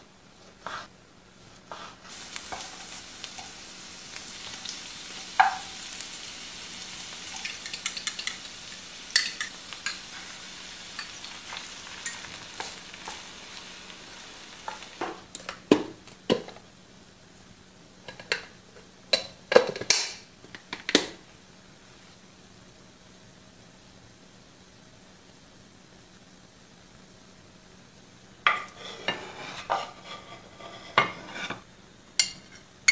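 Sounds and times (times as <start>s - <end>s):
food sizzling in a frying pan: 0.7s - 17.1s, 28.3s - 32.9s
wooden spatula scraping pan: 1.6s - 3.5s, 28.5s - 31.7s.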